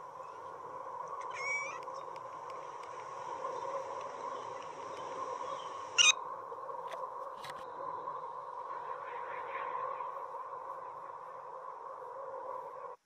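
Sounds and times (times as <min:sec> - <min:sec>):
high cat squeaks: 0:01.3 - 0:01.8.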